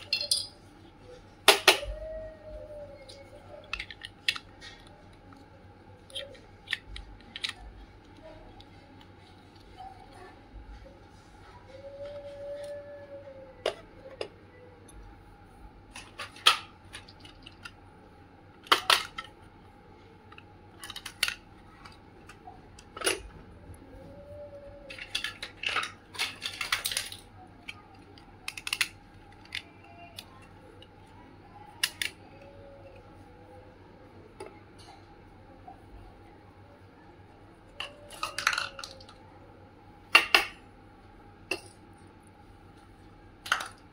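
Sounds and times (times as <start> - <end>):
toy pieces clicking on tabletop: 28.4 - 29.6.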